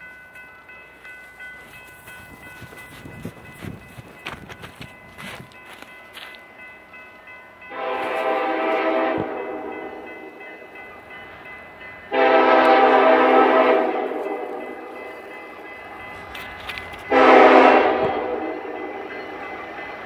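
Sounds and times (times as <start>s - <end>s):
locomotive air horn blasts: 7.7s - 10.2s, 12.1s - 14.9s, 17.1s - 19.0s.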